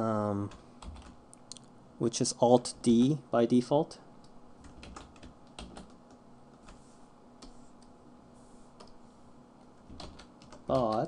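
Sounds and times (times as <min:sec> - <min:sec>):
keyboard and mouse clicks: 0:09.8 - 0:11.0.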